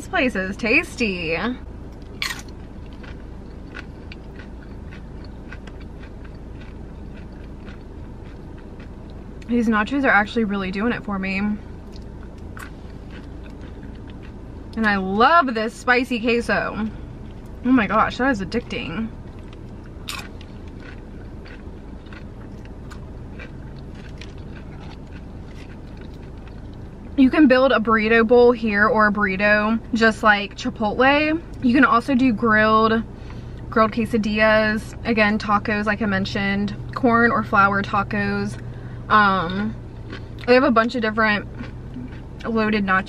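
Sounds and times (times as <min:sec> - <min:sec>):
low rumble: 0:00.0 - 0:43.0
low steady car cabin hum: 0:00.0 - 0:43.0
chewing with small crunches: 0:01.9 - 0:10.0, 0:11.6 - 0:15.0, 0:16.5 - 0:27.2, 0:38.5 - 0:43.0
tortilla chip crunching: 0:02.0 - 0:09.2, 0:19.3 - 0:26.9.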